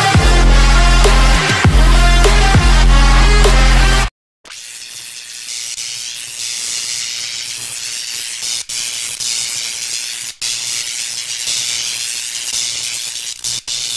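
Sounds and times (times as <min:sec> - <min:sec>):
steady hissing: 0:04.6 - 0:13.9.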